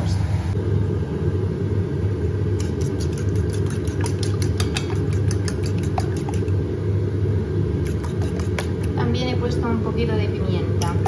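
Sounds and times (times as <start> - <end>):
fork tines clicking against bowl: 2.6 - 6.6, 7.8 - 9.0.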